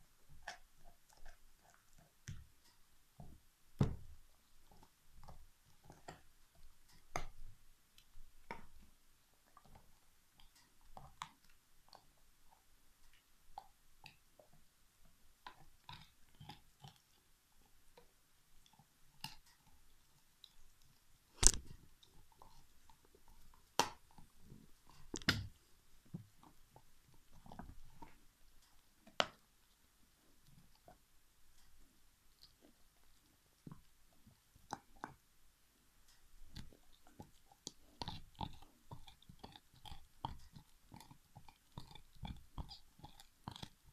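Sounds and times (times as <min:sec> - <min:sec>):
dog chewing bone: 0:00.2 - 0:02.6, 0:03.2 - 0:31.1, 0:31.7 - 0:35.2, 0:36.4 - 0:43.9
bone cracking: 0:21.4 - 0:21.8.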